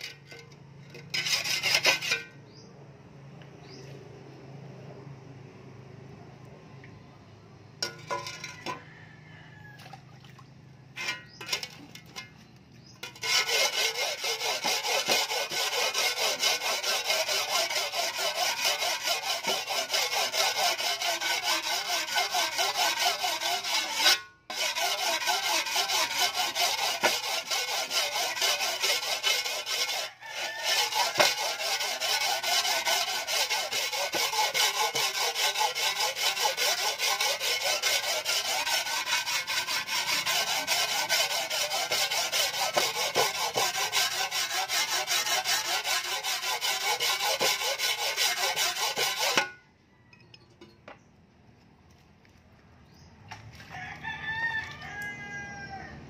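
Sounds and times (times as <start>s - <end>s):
file rasping on steel blade: 0.0s - 2.4s, 13.0s - 49.6s.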